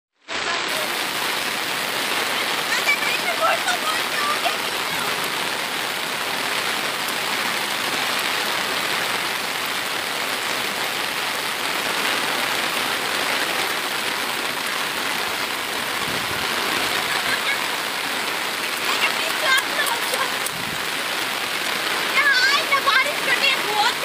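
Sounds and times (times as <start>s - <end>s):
heavy rain pouring: 0.2s - 24.0s.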